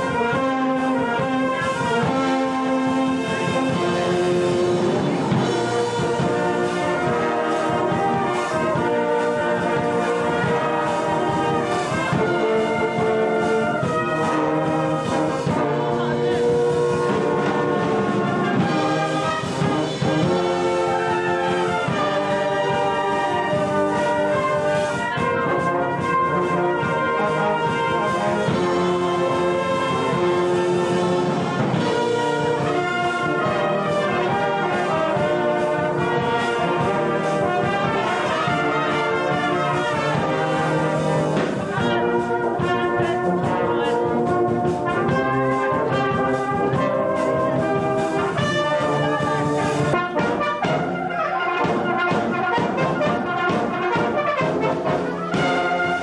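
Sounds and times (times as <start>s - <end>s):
brass band playing: 0.0s - 56.0s
trombones: 0.0s - 56.0s.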